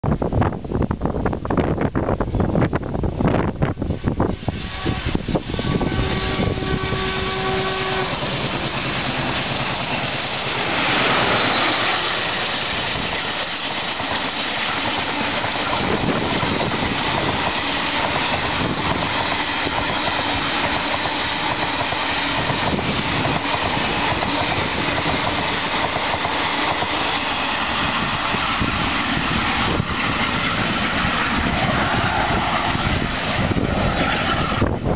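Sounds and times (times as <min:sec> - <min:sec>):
diesel locomotive engine: 0:00.2 - 0:34.9
train coaches rolling on rails: 0:01.5 - 0:34.9
train horn: 0:04.0 - 0:09.0.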